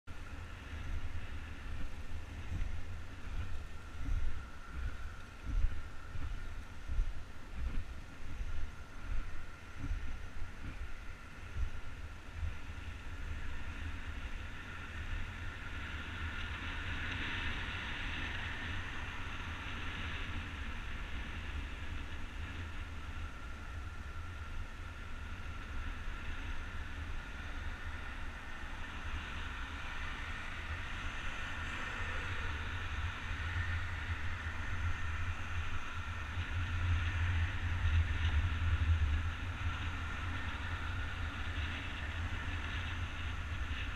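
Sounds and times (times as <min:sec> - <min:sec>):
skate wheels rolling on asphalt: 0:00.1 - 0:43.9
wind buffeting microphone: 0:00.1 - 0:43.9.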